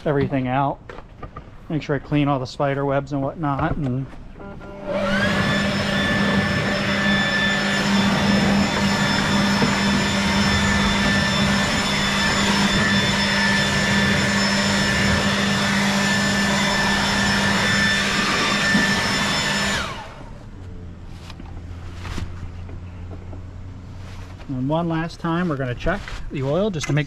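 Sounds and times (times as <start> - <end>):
leaf blower running: 4.4 - 23.4.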